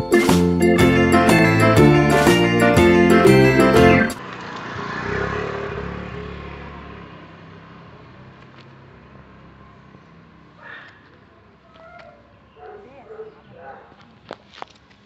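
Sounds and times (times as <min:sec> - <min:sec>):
intro jingle: 0:00.0 - 0:04.2.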